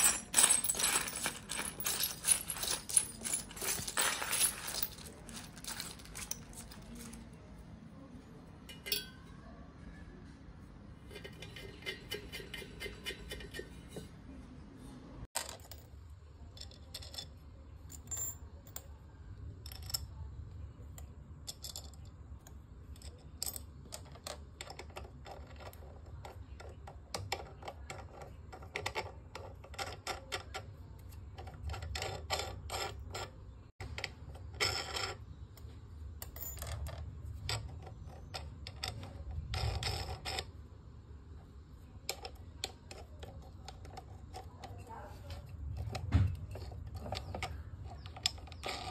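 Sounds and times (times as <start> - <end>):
metal nuts and washers clinking: 0.0 - 7.4, 8.6 - 9.4, 11.0 - 14.2, 15.4 - 19.0, 21.0 - 22.2, 22.9 - 40.5.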